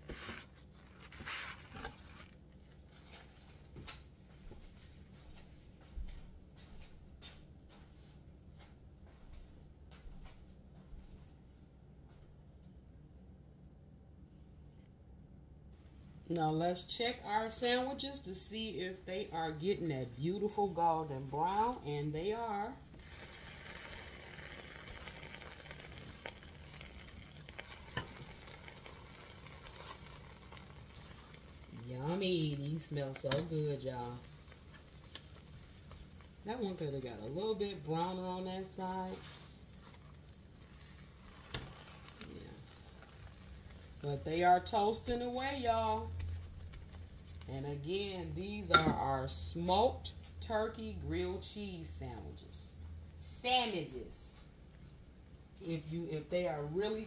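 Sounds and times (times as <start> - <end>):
paper towel rubbing on griddle: 0.0 - 3.7
low steady hum: 0.0 - 57.0
sandwiches sizzling on griddle: 22.9 - 36.5, 38.7 - 44.0.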